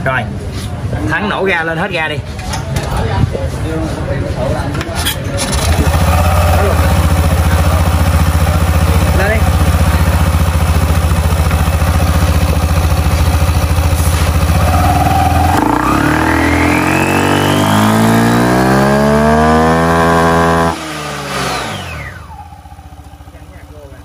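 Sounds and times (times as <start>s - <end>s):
scooter engine revving: 5.4s - 24.0s.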